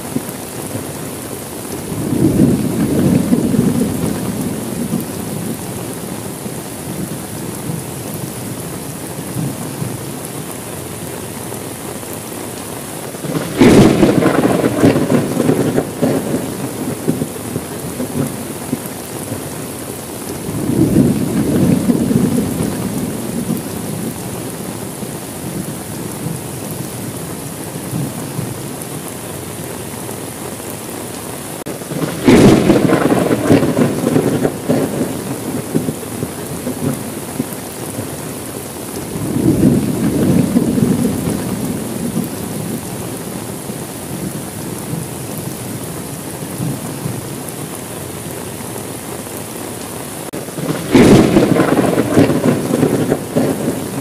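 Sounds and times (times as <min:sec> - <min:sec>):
thunder rumbling: 0:00.0 - 0:30.7, 0:31.3 - 0:49.4, 0:50.0 - 0:54.0
steady rain: 0:00.0 - 0:54.0
sharp thunderclap: 0:01.9 - 0:05.6, 0:13.2 - 0:19.5, 0:20.4 - 0:24.2, 0:31.8 - 0:38.2, 0:39.0 - 0:42.9, 0:50.3 - 0:54.0.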